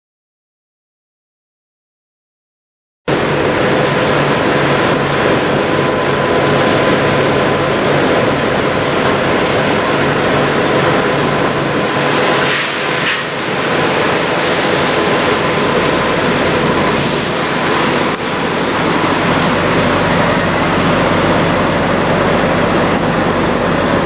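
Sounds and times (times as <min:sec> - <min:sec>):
diesel trucks idling: 0:03.1 - 0:24.0
brief rush of noise: 0:12.2 - 0:16.1, 0:16.8 - 0:18.0.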